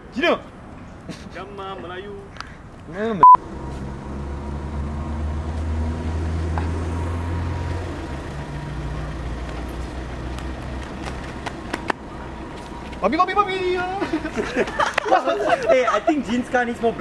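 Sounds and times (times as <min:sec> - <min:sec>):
car engine idling: 0:06.5 - 0:14.9.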